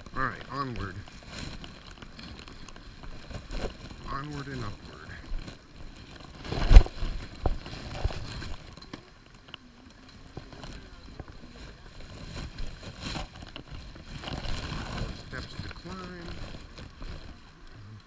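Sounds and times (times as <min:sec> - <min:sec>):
microphone handling noise: 0:00.0 - 0:08.8, 0:10.3 - 0:18.0
faint voices: 0:04.0 - 0:05.7, 0:08.1 - 0:18.0.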